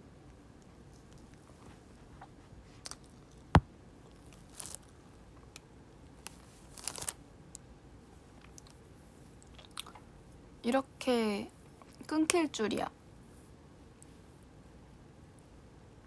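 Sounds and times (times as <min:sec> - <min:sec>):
plastic bag crinkling: 0:04.2 - 0:04.9, 0:06.2 - 0:07.2.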